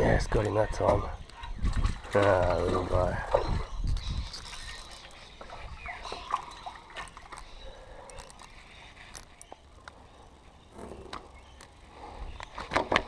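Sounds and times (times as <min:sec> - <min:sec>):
fishing gear clicks and knocks: 0:02.2 - 0:10.0, 0:10.8 - 0:11.8.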